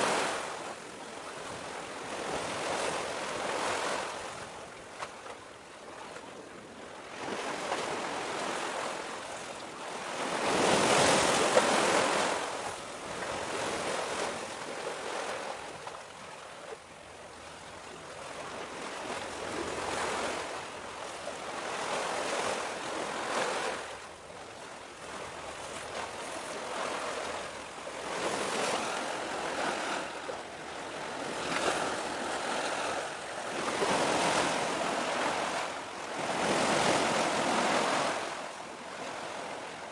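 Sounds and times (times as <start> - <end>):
sea waves washing: 18.3 - 39.9.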